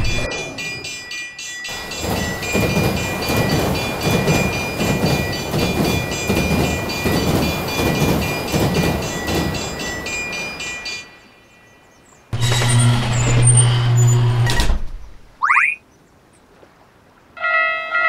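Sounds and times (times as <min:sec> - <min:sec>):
crossing bell ringing: 0:00.0 - 0:12.6
train wheels clattering: 0:01.7 - 0:11.0.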